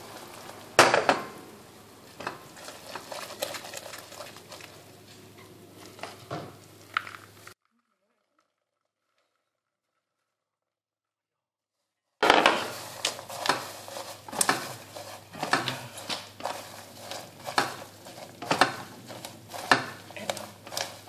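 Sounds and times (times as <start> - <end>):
spatula scraping saucepan: 12.5 - 21.0.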